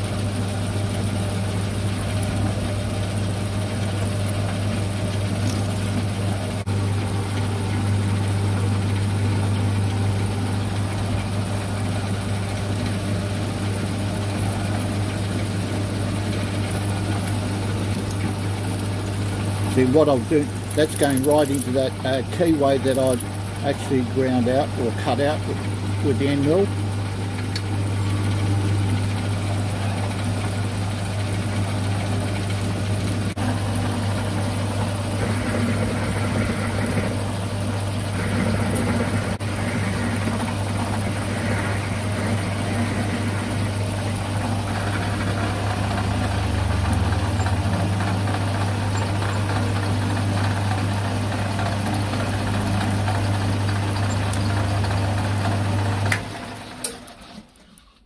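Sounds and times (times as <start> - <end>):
milling machine motor hum: 0.0 - 58.0
milling cutter cutting metal: 16.3 - 26.7, 38.2 - 47.7.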